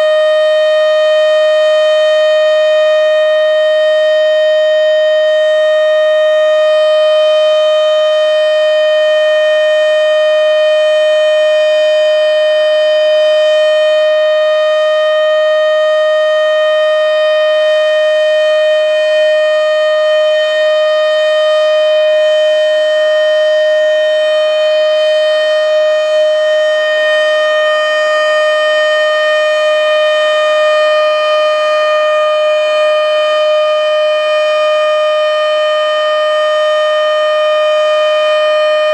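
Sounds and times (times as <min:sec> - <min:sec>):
warning siren steady tone: 0:00.0 - 0:38.9.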